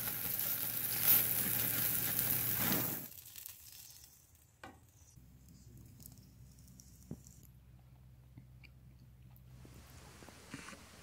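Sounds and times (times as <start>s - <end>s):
patties sizzling on grill: 0.0s - 5.0s.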